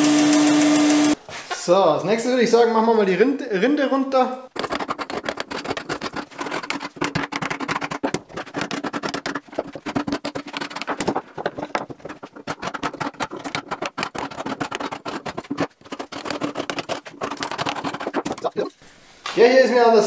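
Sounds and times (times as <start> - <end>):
chisel chipping bark: 4.6 - 18.7
chisel blade scraping: 4.6 - 18.8.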